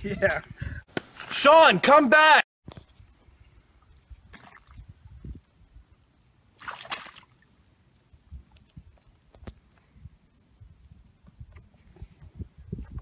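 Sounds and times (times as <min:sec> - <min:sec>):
boots sloshing in shallow water: 0:06.6 - 0:07.4.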